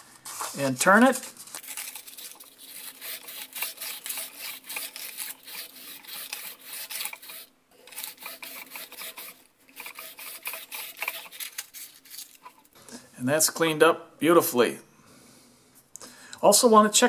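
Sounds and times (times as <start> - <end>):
sandpaper scratching on metal: 1.6 - 12.5.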